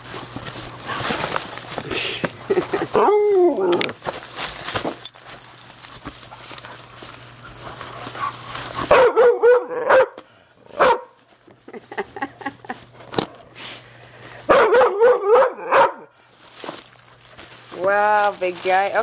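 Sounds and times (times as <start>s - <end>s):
cardboard rustling: 0.0s - 9.0s, 16.4s - 19.0s
dog whine-barking: 8.9s - 10.2s, 14.5s - 16.1s.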